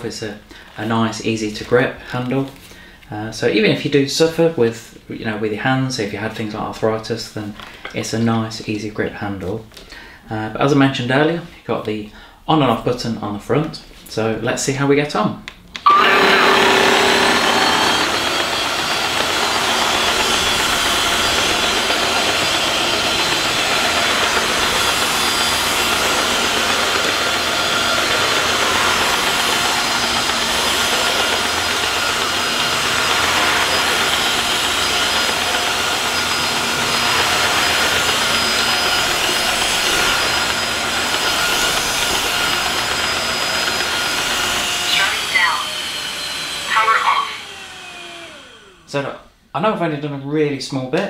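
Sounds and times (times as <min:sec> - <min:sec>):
floor washer running with whine: 0:15.8 - 0:49.0.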